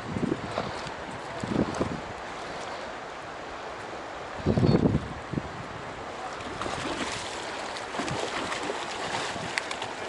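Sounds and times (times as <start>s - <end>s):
river current rushing: 0.0s - 10.0s
fish splashing: 6.4s - 10.0s.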